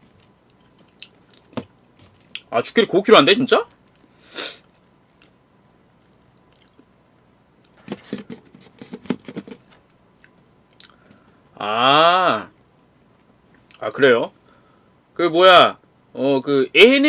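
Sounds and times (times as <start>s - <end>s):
crunchy chewing: 5.2s - 6.9s.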